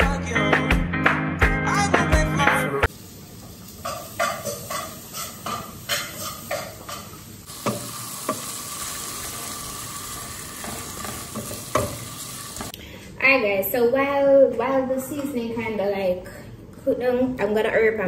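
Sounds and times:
background music: 0.0 - 2.9
food sizzling in oil: 2.9 - 12.7
spatula knocking on pan: 7.6 - 8.5, 10.6 - 12.1.

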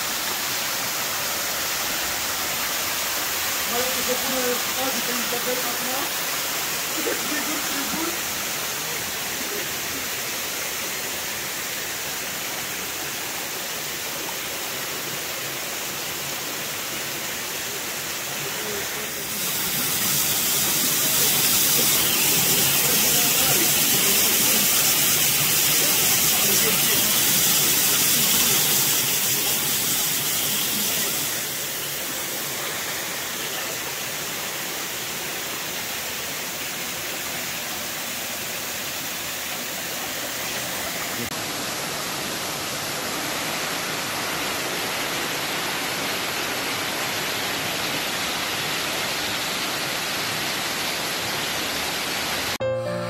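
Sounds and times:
waterfall rushing: 0.0 - 53.0
music: 52.6 - 53.0.

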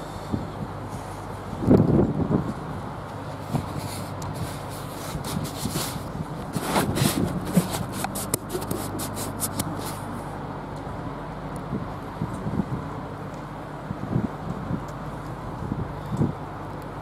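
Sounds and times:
phone rubbing against fabric: 3.5 - 10.1.

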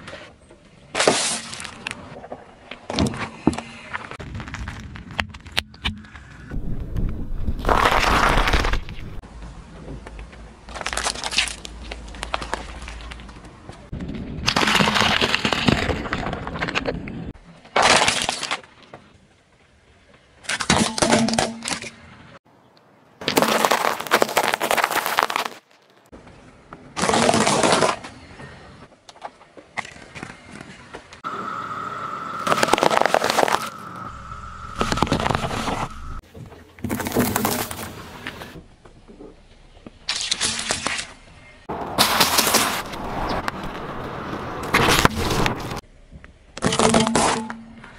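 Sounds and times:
tyre crushing objects: 6.6 - 9.2, 23.2 - 26.1, 36.8 - 38.1
tyre crunching wrapped candies: 23.2 - 26.1, 32.4 - 33.8
thin high tone: 31.2 - 36.2.

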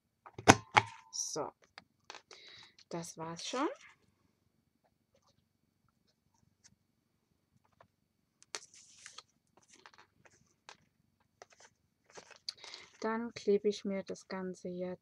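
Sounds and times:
cardstock rustling: 8.5 - 10.8, 11.4 - 13.0.

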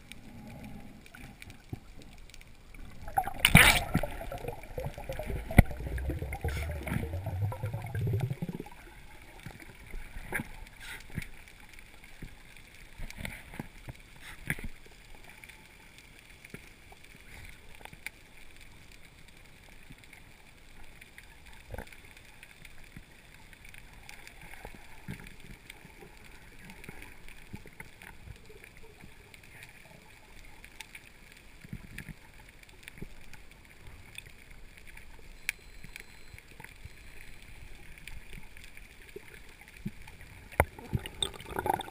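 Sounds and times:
water gurgling underwater: 0.0 - 10.7, 38.1 - 41.9
faint steady hiss: 0.0 - 41.9
sharp underwater clicks and crackles: 0.0 - 41.9.

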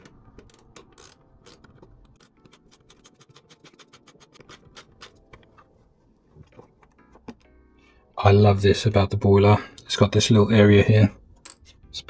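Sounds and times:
small clicks and scratches: 0.4 - 5.7.

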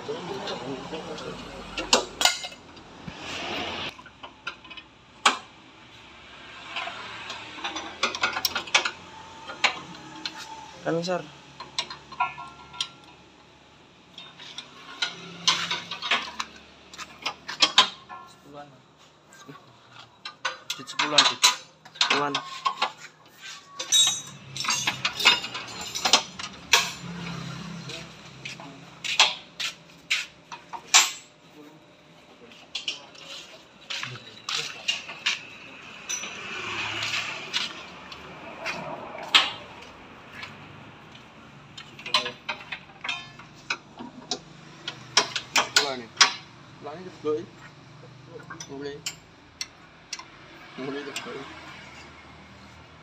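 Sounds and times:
metal tools clinking: 1.8 - 2.6, 20.0 - 27.8, 30.5 - 31.3, 32.7 - 37.9, 41.8 - 43.8.

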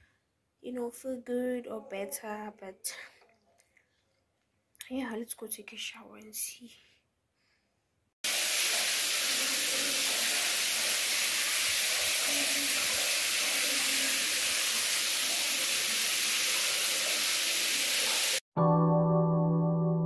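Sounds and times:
shower spray on tiled floor: 8.2 - 18.4.

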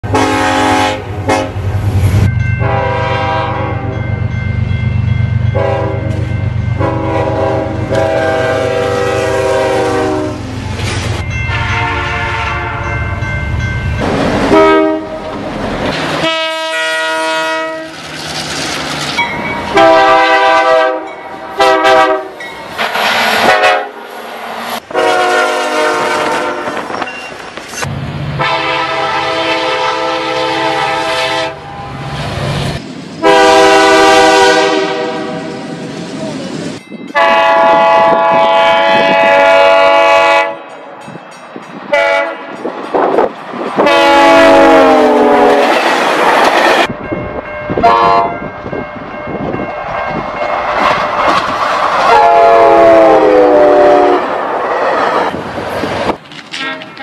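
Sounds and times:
train air horns: 0.0 - 1.7, 2.6 - 3.9, 5.6 - 6.2, 6.8 - 10.6, 11.5 - 12.9, 14.5 - 15.3, 16.2 - 18.0, 19.7 - 24.1, 24.8 - 27.0, 28.4 - 32.0, 33.2 - 35.7, 37.1 - 40.7, 41.9 - 42.6, 43.8 - 45.8, 47.8 - 48.4, 52.1 - 54.3, 56.5 - 57.0
moving train noise: 0.0 - 57.0.

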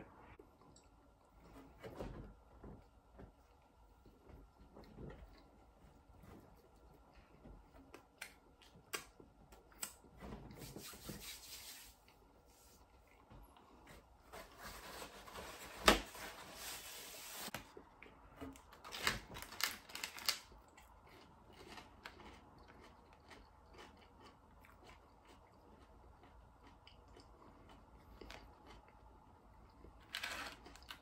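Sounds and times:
cardboard tearing and rustling: 18.8 - 20.4
faint chewing: 20.5 - 31.0.

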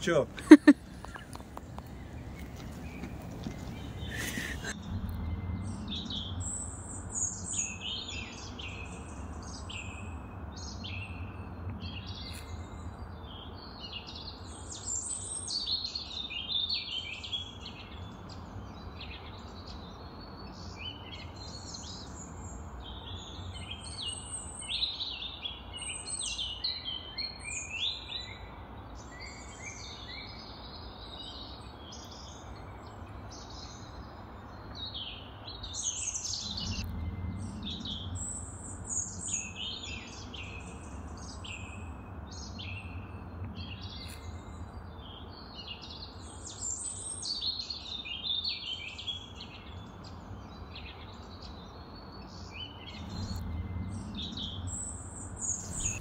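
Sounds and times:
low steady rumble: 0.0 - 13.1, 36.2 - 45.3, 52.3 - 56.0
birds singing and chirping: 0.0 - 56.0.

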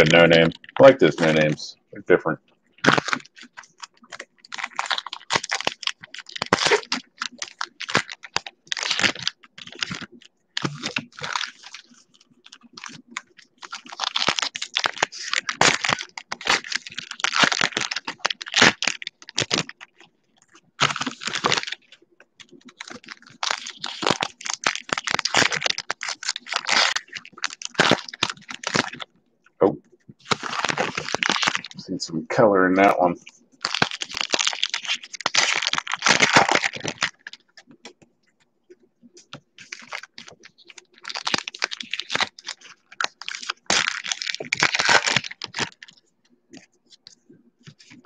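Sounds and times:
cards shuffling: 2.8 - 29.1, 39.3 - 46.0.

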